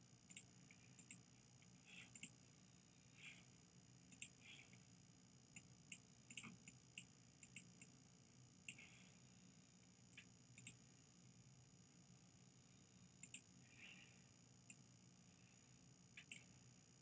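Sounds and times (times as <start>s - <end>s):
low steady hum: 0.0s - 17.0s
keyboard and mouse clicks: 5.6s - 7.7s.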